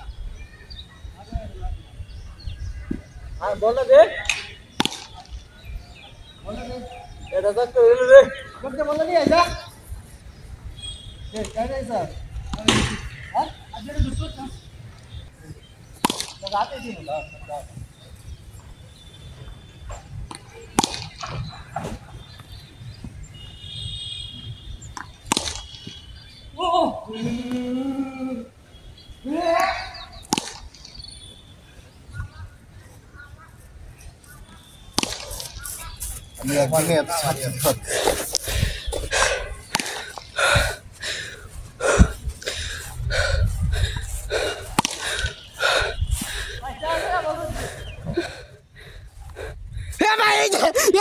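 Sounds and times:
cricket bat striking ball: 0:04.3 - 0:05.2, 0:12.5 - 0:13.2, 0:16.0 - 0:16.6, 0:20.3 - 0:22.0, 0:25.0 - 0:25.8, 0:30.2 - 0:30.8, 0:34.9 - 0:35.6, 0:44.8 - 0:45.0
heavy breathing: 0:37.8 - 0:50.0.

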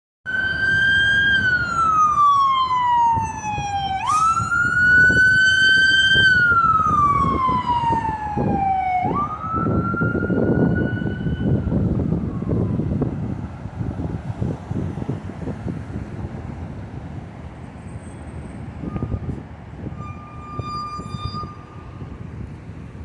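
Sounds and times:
emergency siren wailing: 0:00.3 - 0:13.4, 0:18.8 - 0:22.2
low traffic rumble: 0:00.3 - 0:23.0.

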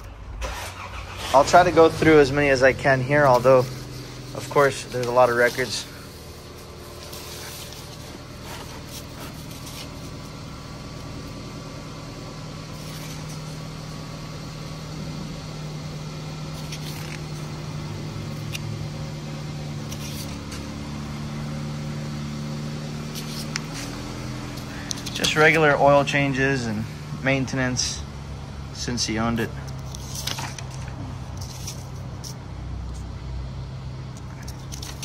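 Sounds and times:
vehicle engine humming: 0:00.0 - 0:35.0
paper sheets rustling: 0:02.6 - 0:10.5, 0:16.5 - 0:20.9, 0:23.1 - 0:25.7, 0:29.6 - 0:32.4, 0:34.3 - 0:35.0.

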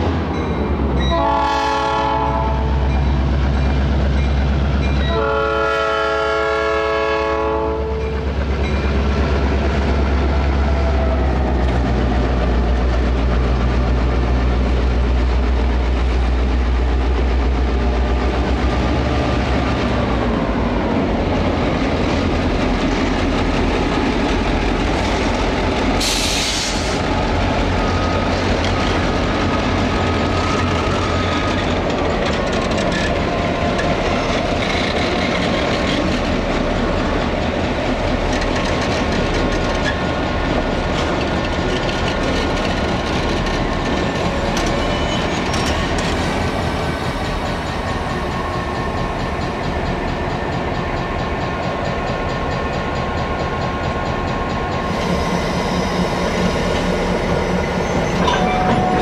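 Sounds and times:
diesel locomotive rumble: 0:00.0 - 0:59.0
locomotive chime horn: 0:01.0 - 0:03.2, 0:04.9 - 0:08.3, 0:57.8 - 0:59.0.

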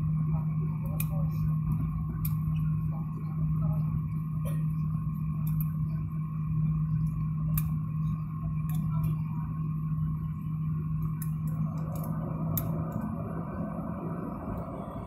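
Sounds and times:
jet engines droning: 0:00.0 - 0:15.0
small clicks and rattles: 0:11.0 - 0:13.1.

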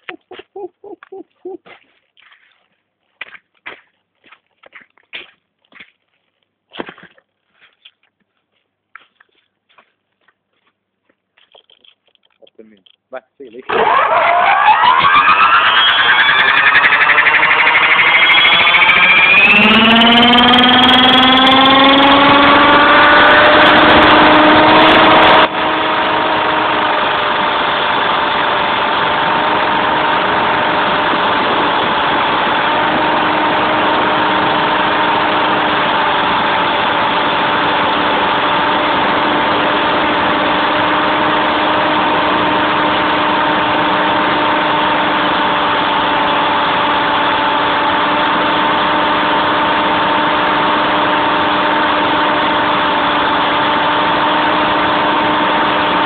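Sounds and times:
helicopter motor whine: 0:13.7 - 0:56.0
rotor rushing noise: 0:13.8 - 0:39.7.

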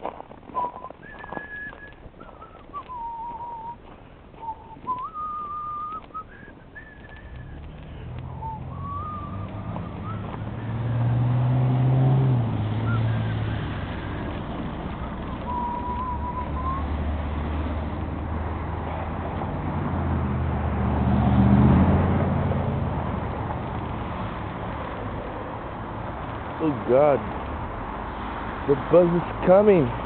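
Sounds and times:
person whistling a tune: 0:00.6 - 0:03.8, 0:04.4 - 0:07.7, 0:08.3 - 0:11.1, 0:12.8 - 0:13.7, 0:15.4 - 0:17.0
passing car rumble: 0:04.4 - 0:30.0.

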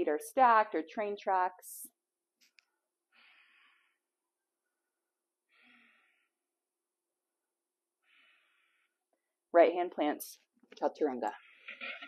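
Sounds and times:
person breathing softly: 0:03.1 - 0:04.1, 0:05.5 - 0:06.5, 0:08.0 - 0:09.4.

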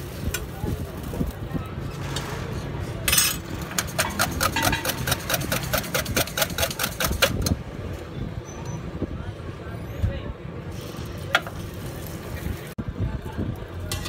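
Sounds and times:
metal utensils clinking on steel: 0:01.9 - 0:07.3.

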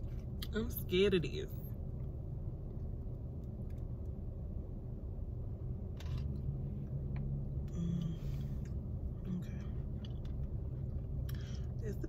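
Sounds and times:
low rumble inside car: 0:00.0 - 0:12.0
person humming: 0:07.7 - 0:08.4
chewing: 0:09.6 - 0:11.6.

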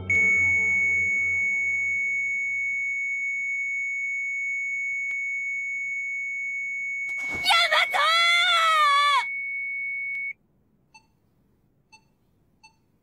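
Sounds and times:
heart monitor flatline tone: 0:00.0 - 0:08.0.

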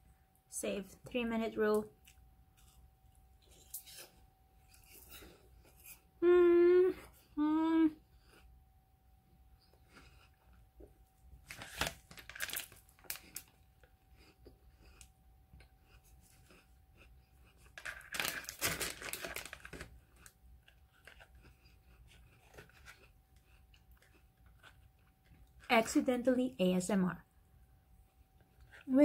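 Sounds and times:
food wrapper crinkling and tearing: 0:11.4 - 0:13.9, 0:17.6 - 0:25.7.

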